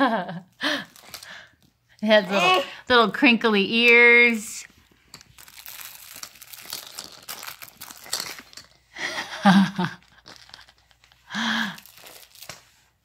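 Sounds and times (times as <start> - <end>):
baby vocal sounds: 2.1 - 2.9
toy crinkle ears crackling: 5.1 - 8.8, 9.9 - 12.7.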